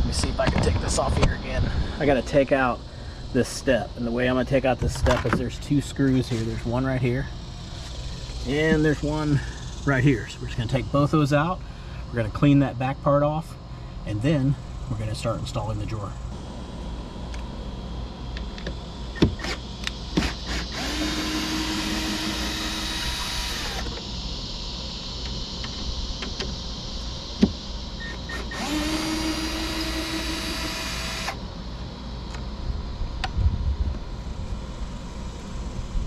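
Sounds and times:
cordless drill motor: 0:18.4 - 0:31.4.

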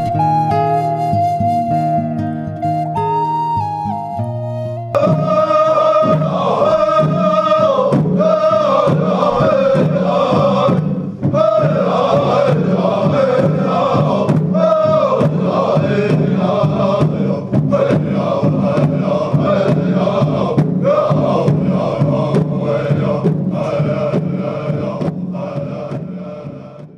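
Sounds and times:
flute melody: 0:00.0 - 0:06.0
men chanting in unison: 0:05.0 - 0:26.9
steady drum beat: 0:05.0 - 0:26.9.

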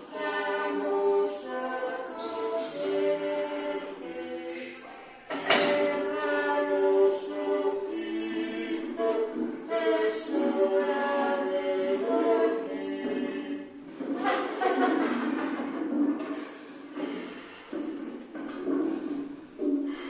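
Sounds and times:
choir singing without instruments: 0:00.0 - 0:15.9.

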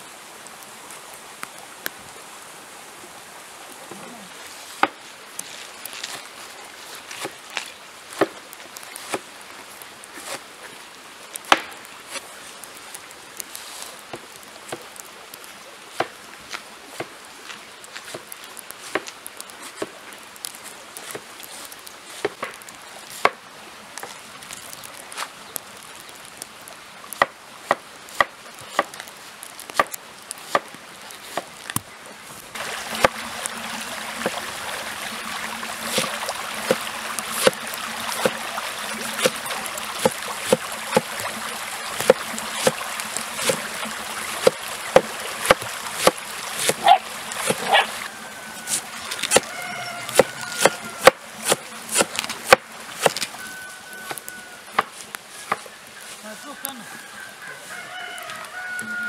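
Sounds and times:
cleaver chopping on wooden board: 0:44.4 - 0:47.7, 0:49.2 - 0:49.5, 0:50.1 - 0:53.2.

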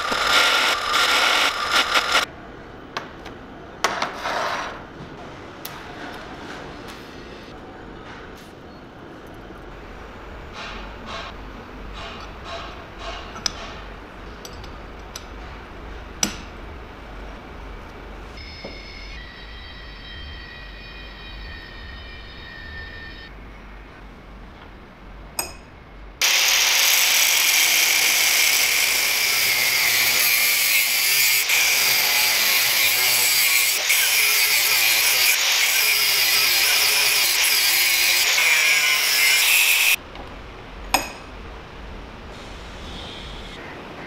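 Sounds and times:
power tool running: 0:00.0 - 0:02.3, 0:26.2 - 0:40.0
faint ringing tones: 0:18.4 - 0:24.4.

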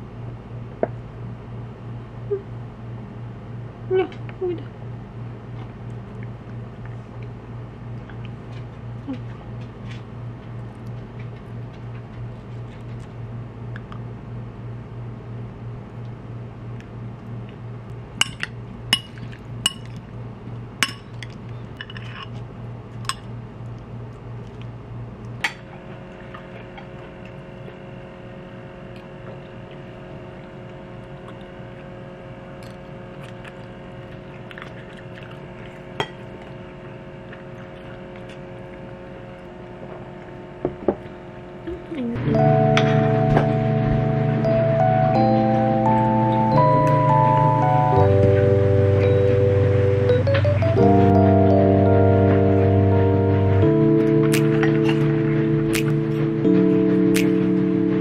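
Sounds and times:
low steady hum: 0:00.0 - 0:58.0
music with chiming tones: 0:42.2 - 0:58.0.

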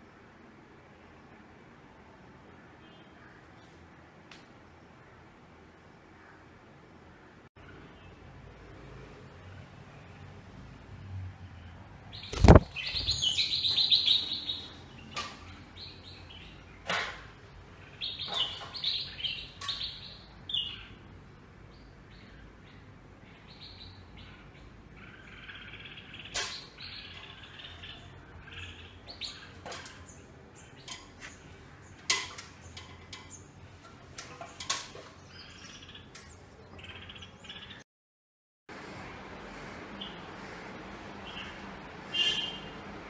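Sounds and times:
small birds chirping: 0:05.9 - 0:37.8, 0:39.9 - 0:42.6.

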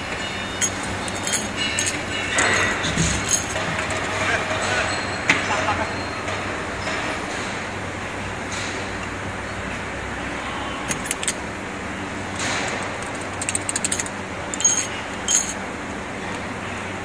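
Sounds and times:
plastic shells clicking and clinking: 0:10.9 - 0:11.4, 0:13.0 - 0:15.6.

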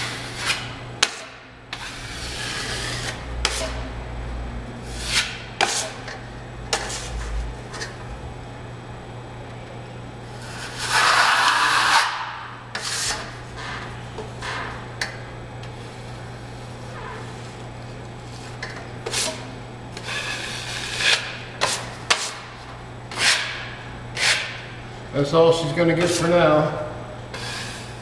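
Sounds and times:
drywall knife scraping filler: 0:00.0 - 0:03.8, 0:10.4 - 0:12.2, 0:12.8 - 0:13.3, 0:20.0 - 0:22.4, 0:23.1 - 0:23.6, 0:24.2 - 0:24.6
steady low hum: 0:00.0 - 0:28.0.

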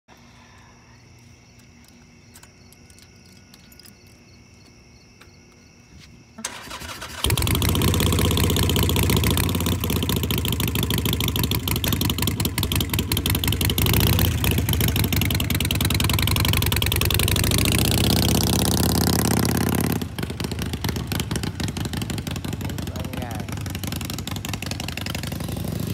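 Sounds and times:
motorcycle engine running: 0:07.2 - 0:25.9.

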